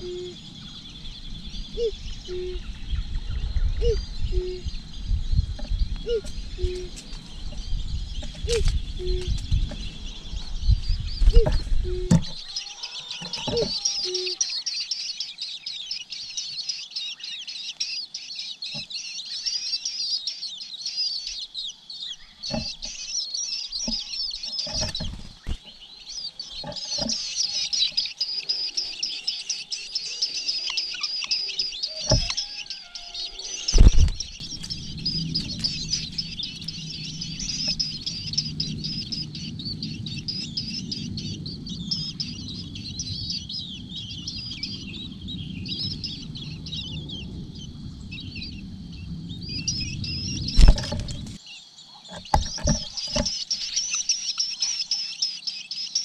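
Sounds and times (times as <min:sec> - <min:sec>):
low rumble: 0:00.0 - 0:12.5, 0:33.8 - 0:51.4
nestlings cheeping: 0:03.8 - 0:47.4.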